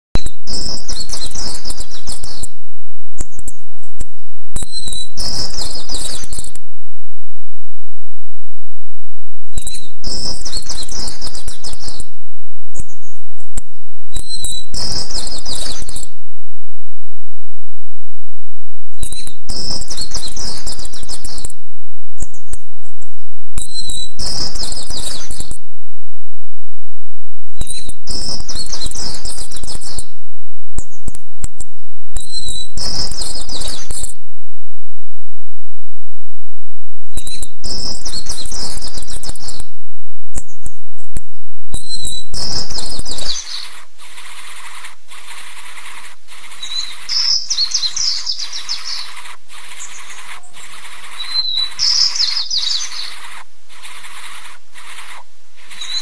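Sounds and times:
bird chicks chirping harshly: 0.2s - 2.4s, 4.6s - 6.5s, 9.6s - 12.0s, 14.2s - 16.1s, 19.0s - 21.5s, 23.6s - 25.5s, 27.7s - 30.0s, 32.2s - 34.1s, 37.2s - 39.6s, 41.8s - 56.0s
chicks raspy begging chirps: 41.8s - 56.0s.

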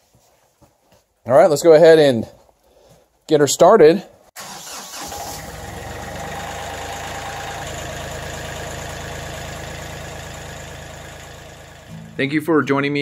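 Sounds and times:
diesel tractor engine idling: 4.4s - 12.4s.

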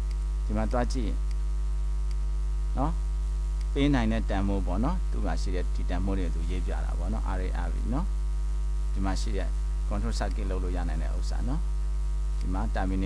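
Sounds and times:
low mains hum with buzzing: 0.0s - 13.0s
man speaking: 0.5s - 1.2s, 2.8s - 3.0s, 3.7s - 8.1s, 8.9s - 11.7s, 12.4s - 13.0s.

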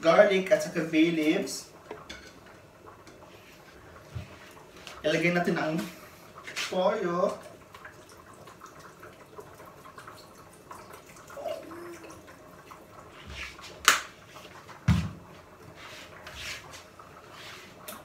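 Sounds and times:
liquid trickling into pot: 1.7s - 14.8s.

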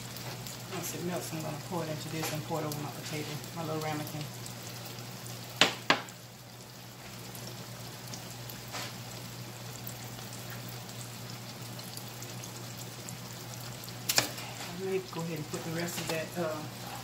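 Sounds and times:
fish frying in hot oil: 0.0s - 17.0s.

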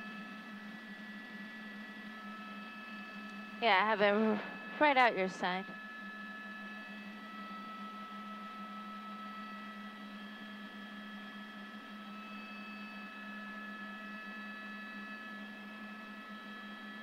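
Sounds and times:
helicopter cabin hum: 0.0s - 7.5s
high whine tones: 0.0s - 17.0s.

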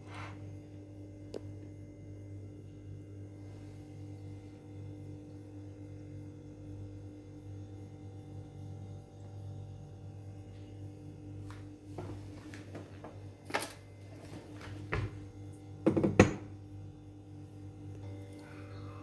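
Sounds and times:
steady low hum: 0.0s - 19.0s
knocks: 15.9s - 16.4s.

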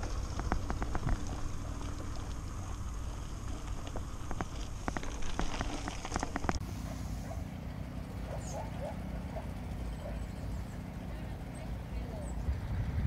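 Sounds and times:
bicycle rattling and clicking: 0.0s - 6.6s
wind and tyre rumble: 0.0s - 7.4s, 10.0s - 13.0s.

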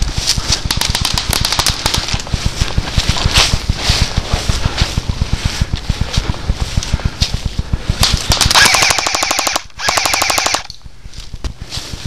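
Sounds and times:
airsoft gun firing full auto: 0.5s - 2.2s, 8.0s - 10.7s.

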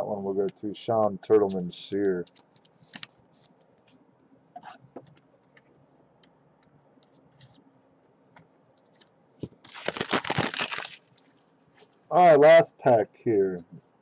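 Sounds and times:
light clicks and plastic rustles: 1.4s - 4.0s, 8.3s - 9.7s
foil pack crinkling: 9.4s - 11.2s.

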